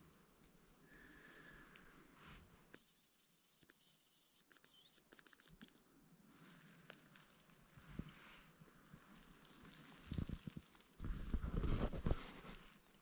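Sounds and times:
high thin decoy whistle: 2.7s - 5.7s.

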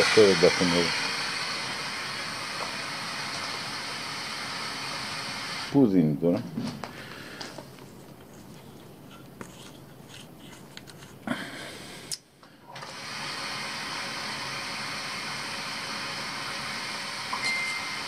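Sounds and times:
water hissing through valve: 0.0s - 5.8s.

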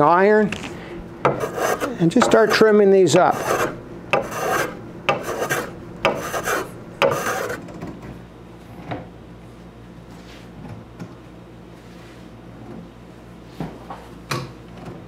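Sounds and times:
hand plane strokes on wood: 1.3s - 7.6s.

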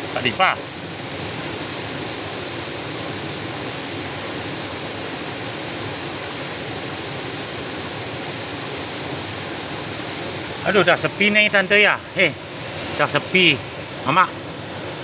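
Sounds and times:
stream rushing over boulders: 0.0s - 15.0s.

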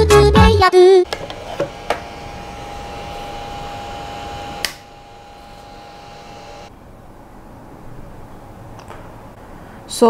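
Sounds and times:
cooling fan humming: 1.0s - 7.8s.

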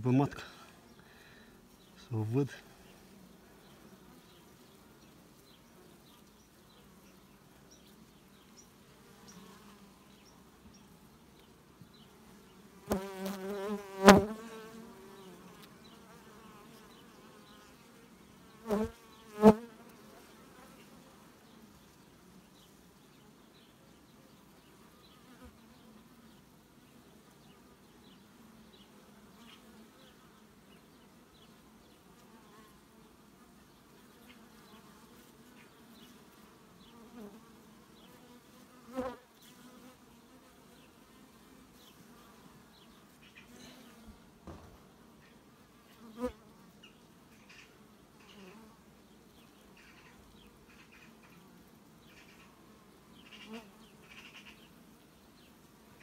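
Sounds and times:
bees humming around a hive: 0.0s - 56.0s
bee buzzing at the microphone: 0.1s - 56.0s.

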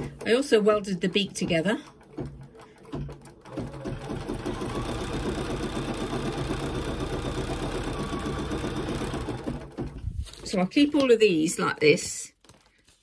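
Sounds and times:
embroidery machine stitching: 0.0s - 10.0s.

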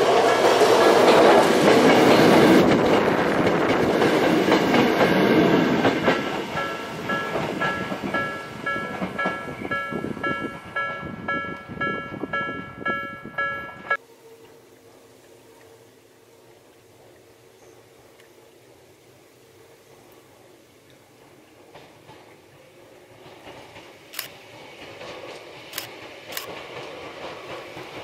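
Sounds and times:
train wheels clattering on rails: 0.0s - 14.0s, 21.3s - 28.0s
level crossing warning bell: 6.2s - 14.0s.

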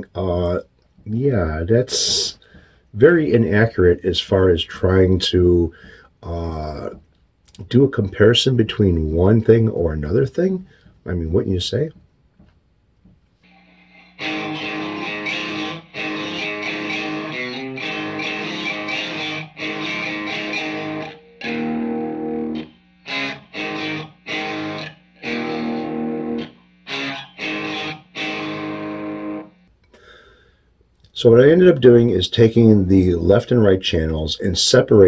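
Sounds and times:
distorted electric guitar chords: 0.0s - 7.1s, 13.5s - 29.8s.

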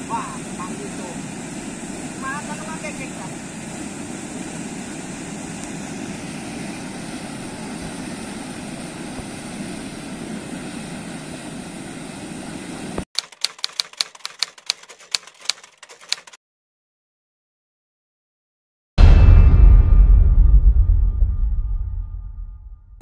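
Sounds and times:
water rushing: 0.0s - 13.0s
typewriter keystroke clicks: 13.2s - 16.4s.

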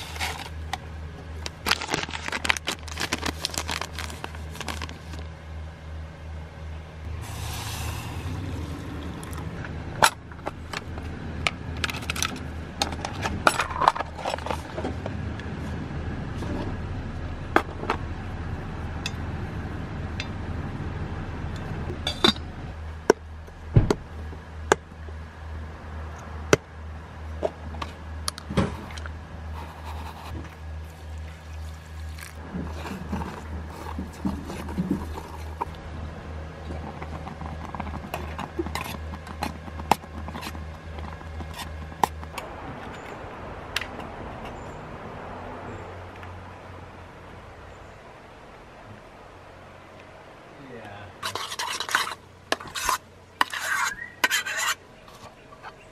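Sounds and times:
low hum: 0.0s - 54.2s
wooden spoon scraping saucepan: 51.2s - 55.8s.

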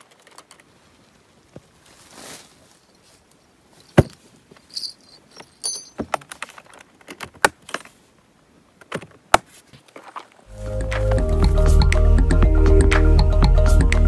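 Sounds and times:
clicks and clinks of latches: 4.6s - 7.9s.

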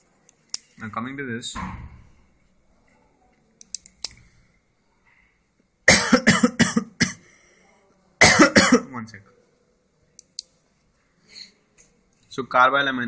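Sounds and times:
person coughing: 5.9s - 7.3s, 8.2s - 9.0s.

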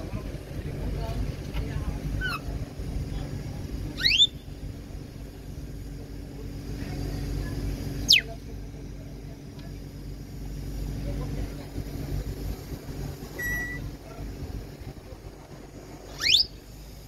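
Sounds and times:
low rumble: 0.0s - 17.0s
parrot whistling: 4.0s - 4.5s, 8.1s - 8.3s, 16.1s - 16.6s.

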